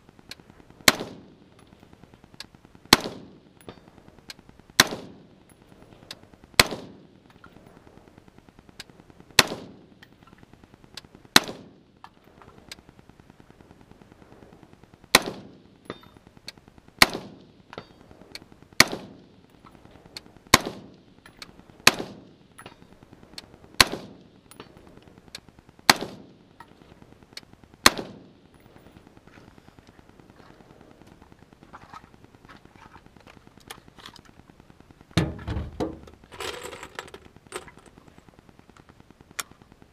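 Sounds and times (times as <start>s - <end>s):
rifle shots with echo: 0.8s - 1.5s, 2.9s - 3.5s, 4.8s - 5.4s, 6.6s - 7.1s, 9.4s - 9.8s, 11.4s - 11.8s, 15.1s - 15.5s, 17.0s - 17.4s, 18.8s - 19.2s, 21.8s - 22.3s, 23.8s - 24.2s, 25.9s - 26.3s, 27.8s - 28.3s.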